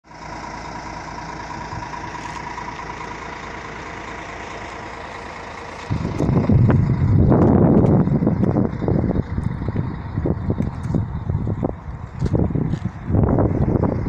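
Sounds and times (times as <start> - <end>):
bus engine idling: 0.1 - 14.0
wind buffeting microphone: 5.9 - 14.0.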